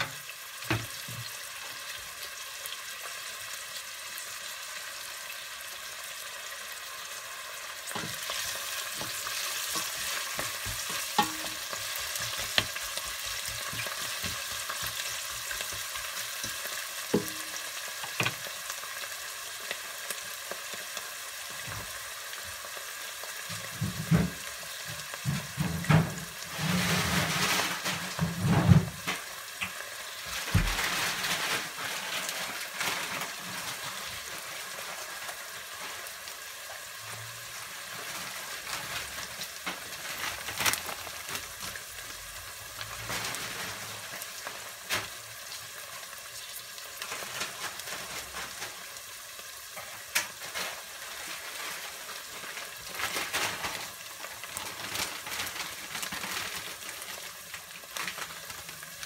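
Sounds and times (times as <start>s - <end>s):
onion sizzling in oil: 0.0s - 59.0s
stirring and scraping pot: 7.9s - 17.6s.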